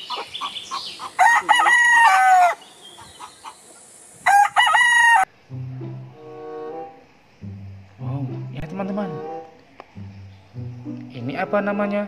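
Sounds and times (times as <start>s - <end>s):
rooster clucking: 0.0s - 3.7s
rooster crowing: 1.1s - 2.6s, 4.2s - 5.3s.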